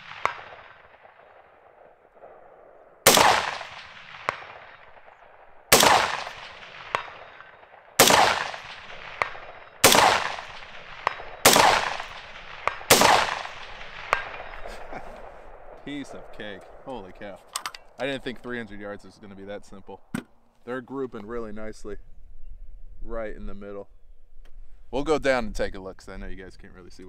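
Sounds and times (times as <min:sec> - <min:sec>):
rifle shots with echo: 0:00.0 - 0:18.5.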